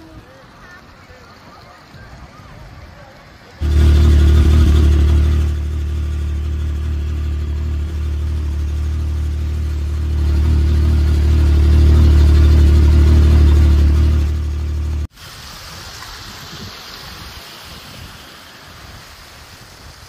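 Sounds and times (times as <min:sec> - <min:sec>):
vehicle engine idling: 0:02.9 - 0:15.1.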